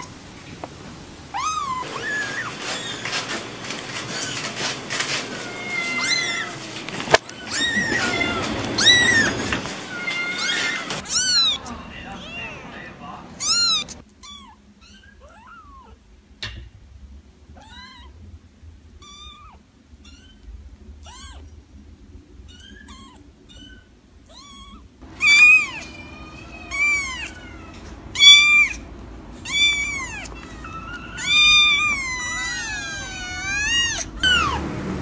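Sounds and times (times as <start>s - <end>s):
kittens mewing: 1.3s - 16.0s, 22.5s - 34.7s.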